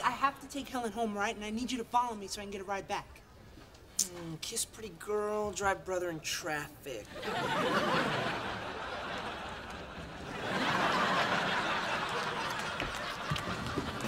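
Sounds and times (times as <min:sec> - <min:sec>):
studio audience laughing: 0:07.1 - 0:14.0.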